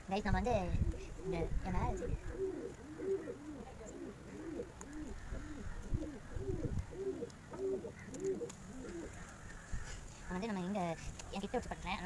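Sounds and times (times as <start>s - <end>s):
pigeon cooing: 0.5s - 10.0s.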